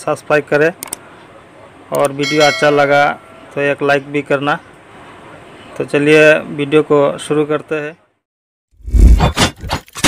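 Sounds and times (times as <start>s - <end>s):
sharp metallic hits: 2.2s - 3.6s.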